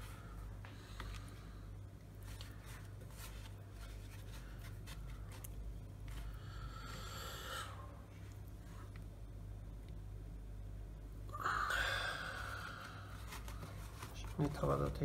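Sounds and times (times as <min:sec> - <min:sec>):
rustling scrape: 0:02.2 - 0:05.5.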